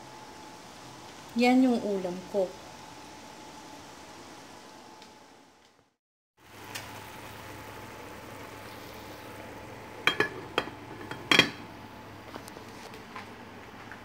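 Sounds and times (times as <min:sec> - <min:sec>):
steady hiss: 0:06.4 - 0:12.2
glass lid clinking on metal pot: 0:10.0 - 0:11.6.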